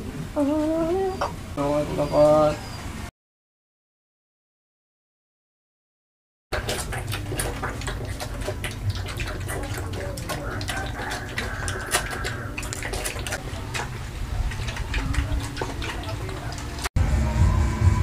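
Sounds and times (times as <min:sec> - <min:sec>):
piglets slurping liquid feed: 0:06.5 - 0:16.9.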